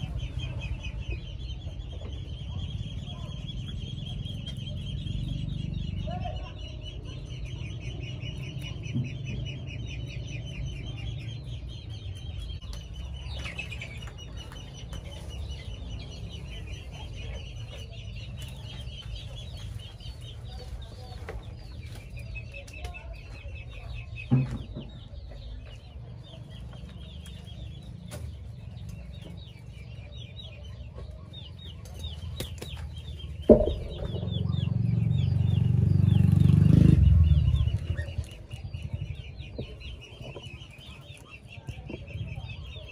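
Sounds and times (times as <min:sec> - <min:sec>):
chickens clucking: 0:00.0 - 0:42.9
loud low rumble: 0:33.4 - 0:40.4
sharp knocks: 0:33.5 - 0:34.7.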